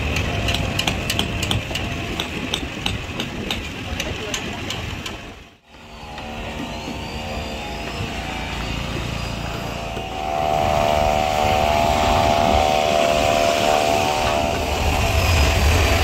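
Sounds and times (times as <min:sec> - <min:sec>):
engine humming: 0:05.2 - 0:16.0.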